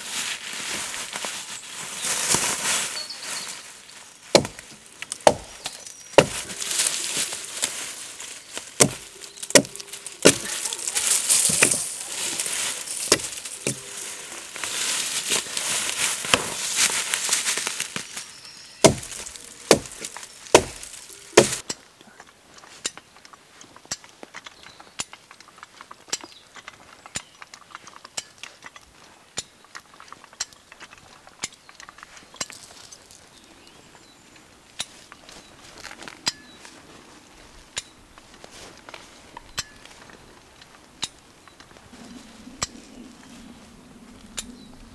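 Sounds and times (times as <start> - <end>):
axe chopping log: 4.3 - 4.6, 5.2 - 6.5, 8.8 - 10.6, 11.5 - 11.8, 13.1 - 13.9, 18.8 - 21.6.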